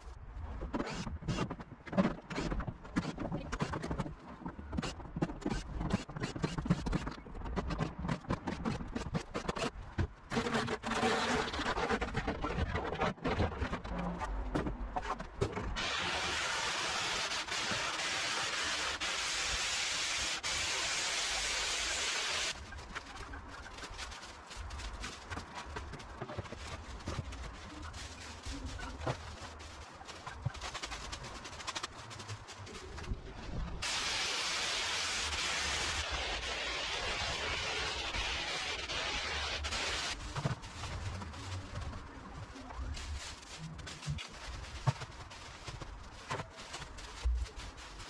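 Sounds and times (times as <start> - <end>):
steady hiss: 15.8 - 22.6, 33.8 - 40.7.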